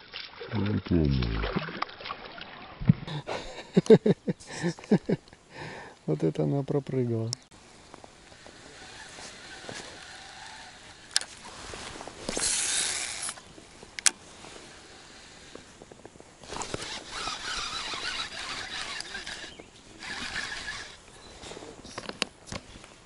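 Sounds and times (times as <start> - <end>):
fishing reel spool whirring: 7.6 - 13.4, 14.4 - 15.8, 16.4 - 21.2
fishing reel clicks: 12.3 - 13.4, 16.6 - 21.0.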